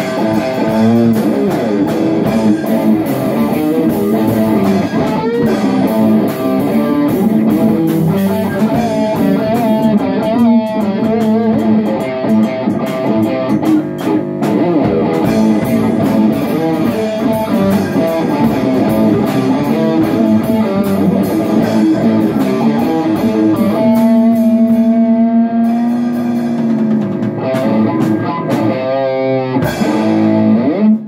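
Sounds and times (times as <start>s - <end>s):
rock band playing: 0.0s - 31.0s.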